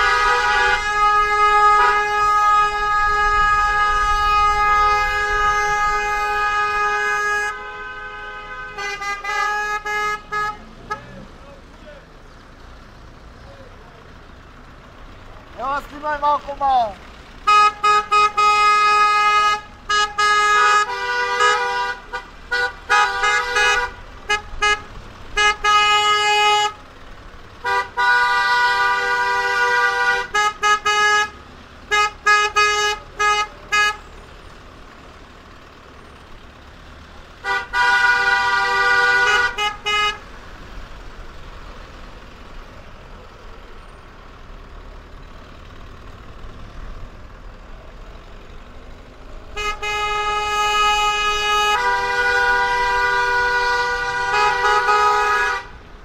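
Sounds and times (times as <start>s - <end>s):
car horns honking: 0.0s - 11.6s, 15.5s - 40.8s, 49.4s - 56.0s.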